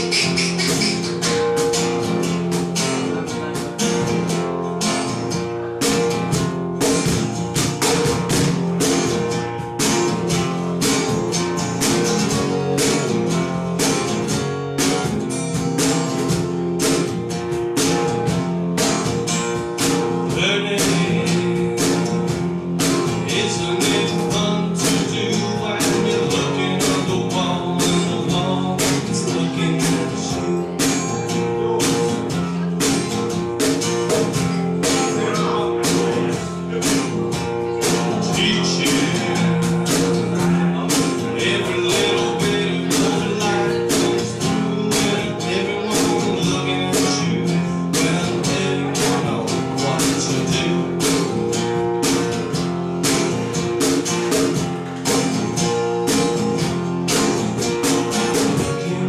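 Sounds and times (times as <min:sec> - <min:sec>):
cajon hand drumming: 0:00.0 - 0:59.0
strummed acoustic guitar: 0:00.0 - 0:59.0
person singing: 0:20.3 - 0:33.1, 0:34.7 - 0:51.3, 0:58.4 - 0:59.0.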